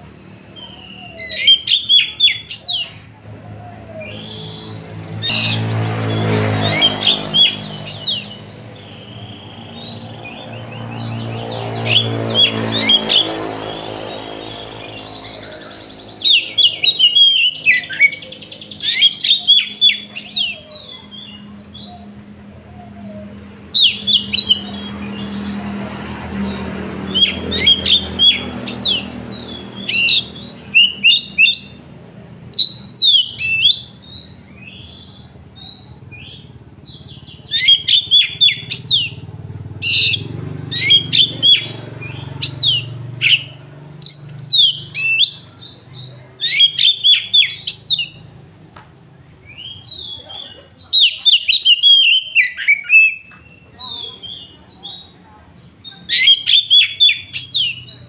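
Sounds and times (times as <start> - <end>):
bird singing whistles: 0.0 - 3.1, 3.7 - 22.1, 23.0 - 25.6, 26.4 - 31.8, 32.5 - 39.2, 39.8 - 48.3, 49.4 - 55.1, 55.8 - 58.0.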